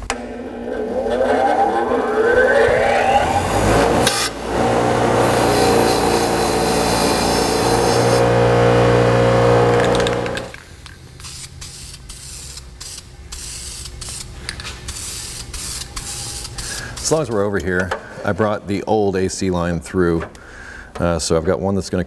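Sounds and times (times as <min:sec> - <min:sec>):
wire wheel grinding metal: 0:03.8 - 0:10.5
aerosol spray can hissing: 0:11.2 - 0:14.3, 0:14.9 - 0:17.1.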